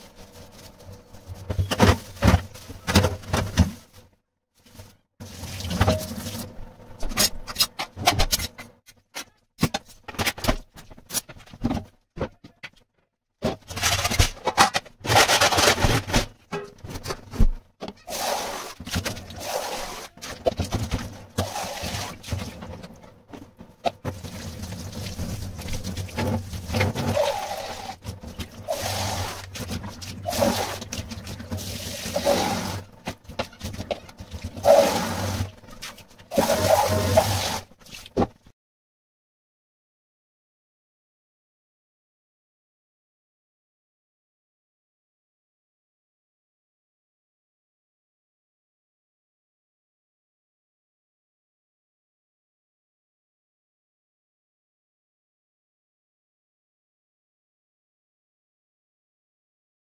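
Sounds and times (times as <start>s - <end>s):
scrubbing and scraping: 0.0s - 8.7s, 13.5s - 38.4s
running water: 24.1s - 38.2s.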